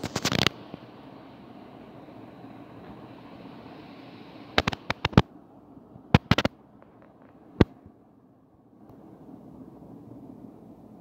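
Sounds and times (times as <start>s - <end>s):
steady background hiss: 0.0s - 11.0s
sharp loud pops: 6.1s - 7.8s.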